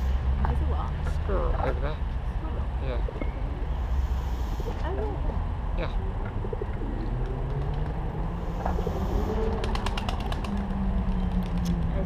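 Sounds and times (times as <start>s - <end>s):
bird wings flapping: 8.8s - 11.9s.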